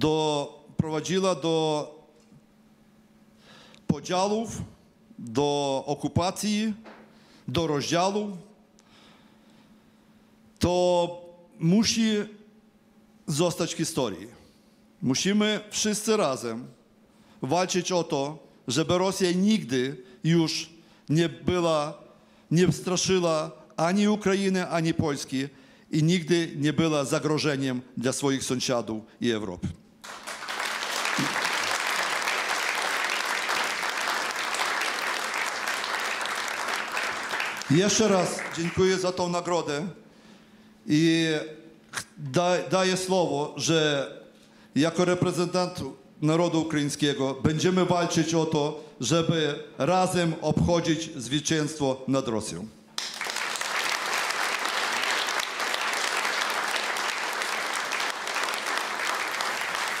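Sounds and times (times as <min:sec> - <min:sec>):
audience applauding: 0:30.0 - 0:39.0, 0:53.0 - 1:00.0.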